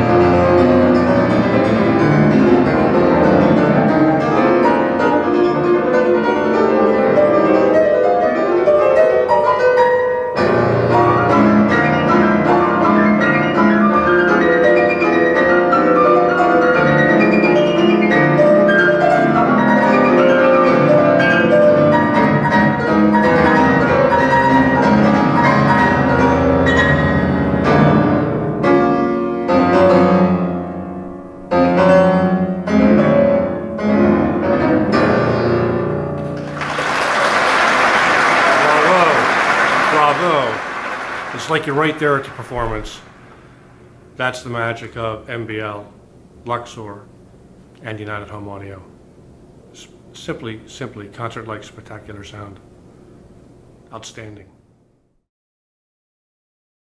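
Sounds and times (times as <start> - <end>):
classical piano and strings music: 0.0 - 39.2.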